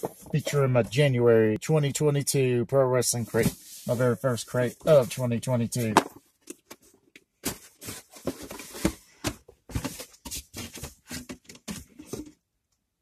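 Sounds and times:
cardboard box being handled and opened: 7.4s - 12.4s.

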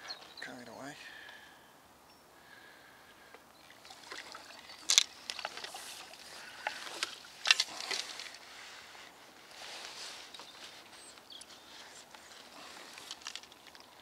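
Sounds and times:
water splashing: 3.6s - 8.4s
fishing pole sections clicking: 4.0s - 8.4s, 12.8s - 14.0s.

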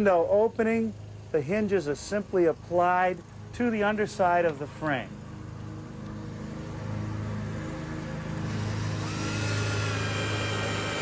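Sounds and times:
steady low hum: 0.0s - 11.0s
power drill whine: 8.3s - 11.0s.

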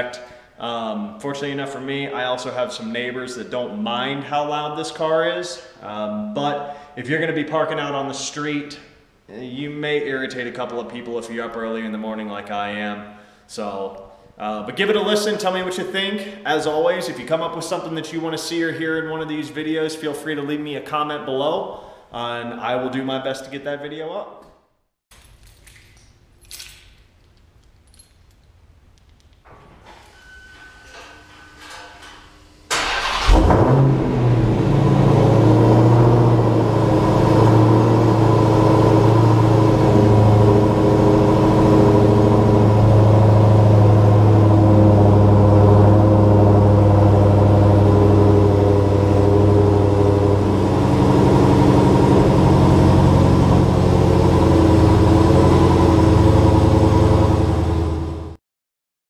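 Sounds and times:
car engine starting and idling: 30.5s - 58.4s.

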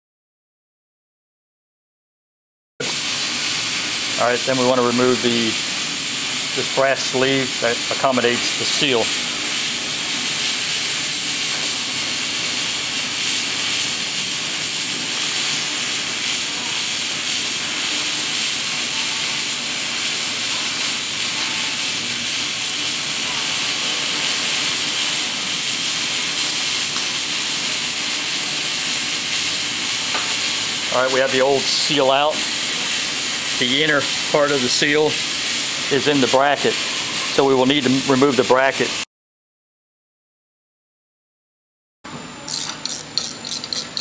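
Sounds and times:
steady high hiss: 3.5s - 38.9s.

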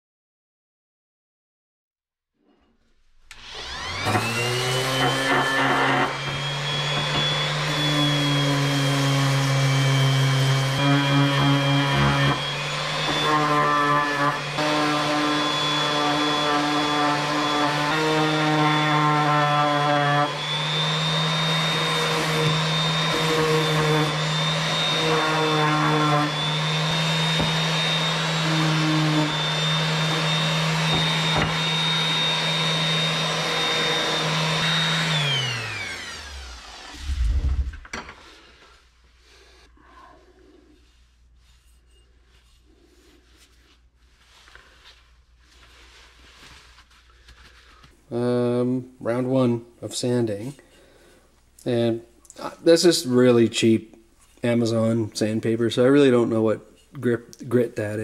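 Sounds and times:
orbital sander on metal: 3.4s - 38.5s.

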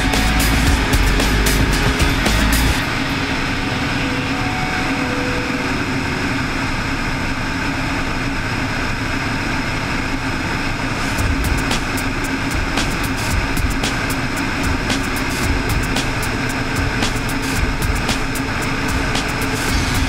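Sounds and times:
plane engine and propeller drone: 0.0s - 20.0s
rushing airflow: 10.5s - 20.0s.

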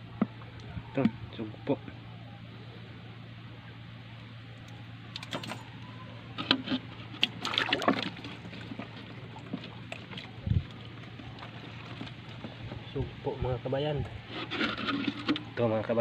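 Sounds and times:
steady low hum: 0.0s - 16.0s
water sloshing: 6.4s - 12.9s.

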